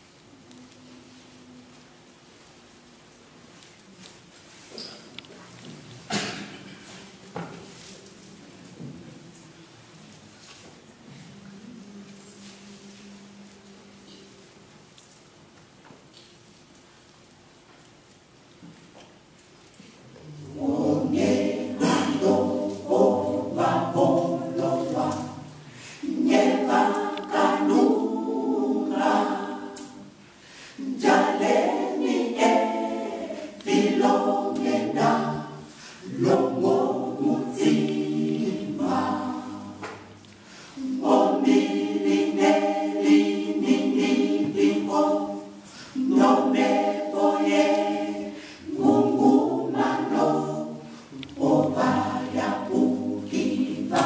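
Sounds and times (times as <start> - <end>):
mixed choir singing a cappella: 10.3 - 14.7, 20.2 - 54.0.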